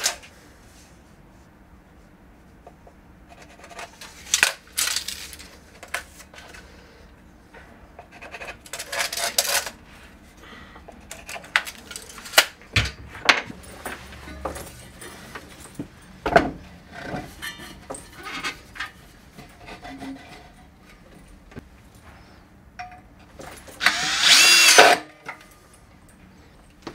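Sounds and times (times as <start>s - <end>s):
hands handling tools and parts: 3.6s - 6.7s, 10.8s - 22.2s.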